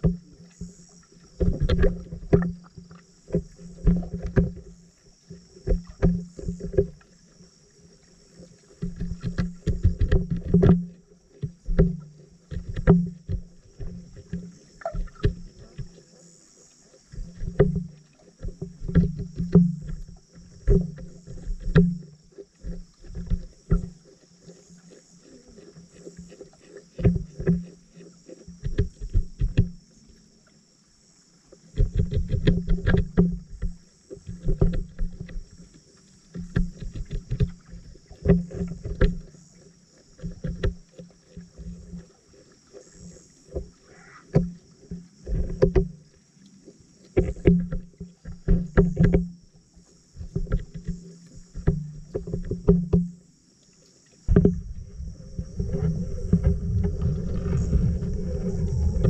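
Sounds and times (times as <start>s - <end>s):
water sloshing: 0.0s - 30.4s, 31.6s - 59.0s
underwater pops and clicks: 8.8s - 15.9s, 17.4s - 20.1s, 20.7s - 24.0s, 28.5s - 29.8s, 31.8s - 35.4s, 36.3s - 39.4s, 47.2s - 49.4s, 50.2s - 53.2s.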